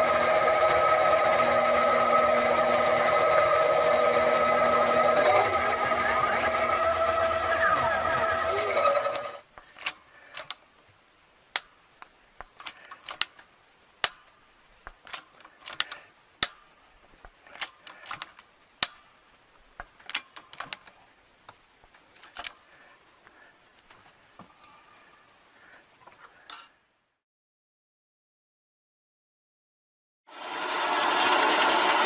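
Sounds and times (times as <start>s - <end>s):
lathe running: 0.0s - 9.4s, 30.3s - 32.0s
sharp metallic clicks: 11.5s - 22.6s.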